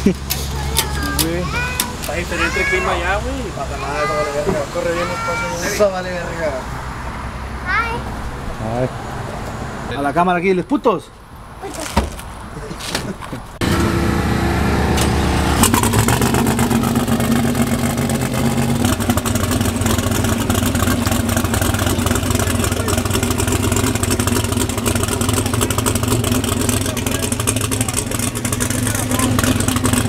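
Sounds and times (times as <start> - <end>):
pickup engine idling: 13.6 - 30.0.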